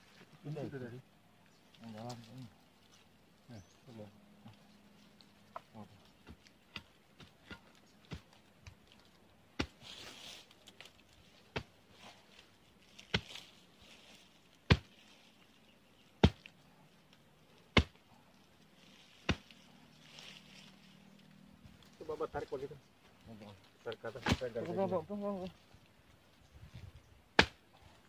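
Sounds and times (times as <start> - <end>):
machete chopping roots and soil: 5.5 - 10.2, 10.8 - 13.6, 14.6 - 15.0, 16.0 - 16.6, 17.6 - 18.1, 19.1 - 19.6, 23.9 - 24.8, 27.3 - 27.8.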